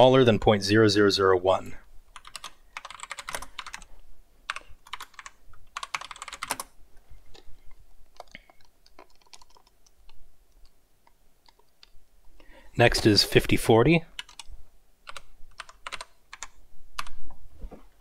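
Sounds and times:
typing on computer keyboard: 2.1 - 3.9, 4.5 - 6.7, 8.1 - 10.2, 14.2 - 14.5, 15.1 - 17.2.

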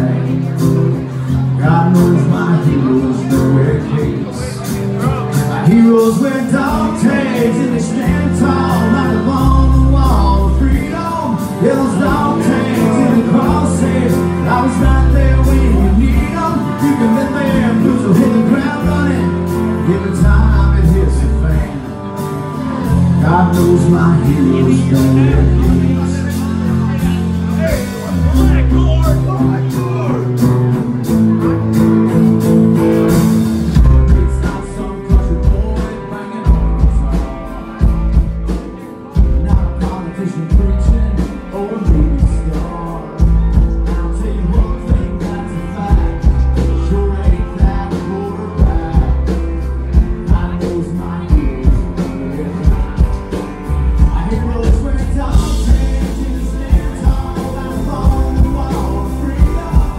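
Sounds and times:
country band playing: 0.0 - 59.9.

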